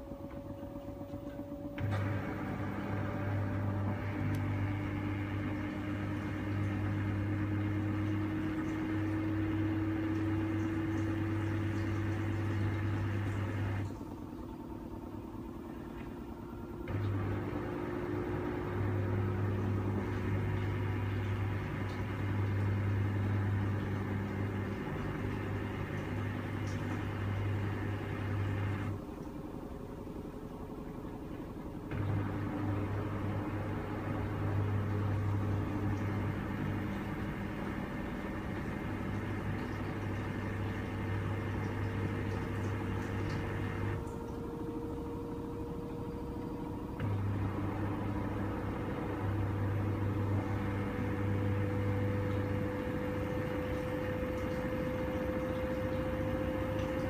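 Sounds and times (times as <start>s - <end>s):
pump humming: 0.0s - 57.0s
washing machine drum motor: 0.0s - 57.0s.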